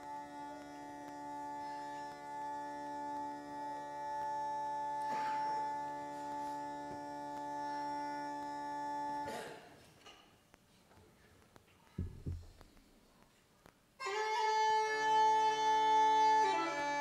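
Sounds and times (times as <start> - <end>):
bagpipe drones: 0.0 - 9.3, 14.0 - 17.0.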